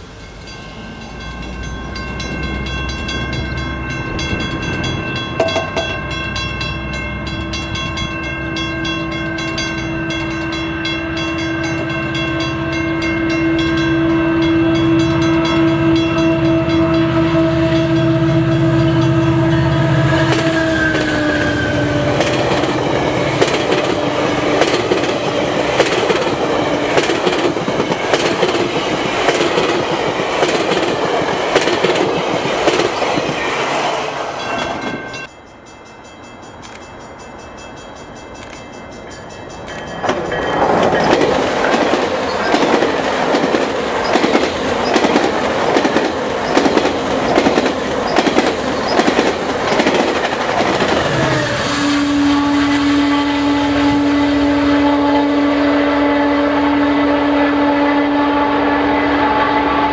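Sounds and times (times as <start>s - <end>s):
train coaches rumbling: 0.0s - 59.9s
wheels clacking over rail joints: 4.2s - 6.1s, 20.3s - 33.7s, 39.6s - 51.3s
train horn: 5.4s - 28.6s, 51.0s - 59.9s.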